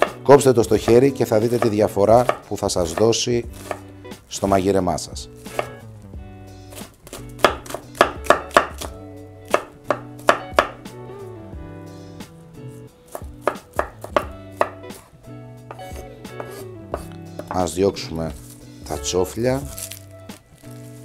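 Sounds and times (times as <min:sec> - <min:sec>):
knife chopping on wooden board: 0:00.0 - 0:00.2, 0:00.9 - 0:03.8, 0:05.4 - 0:05.8, 0:06.7 - 0:10.8, 0:13.1 - 0:15.1, 0:15.7 - 0:17.7.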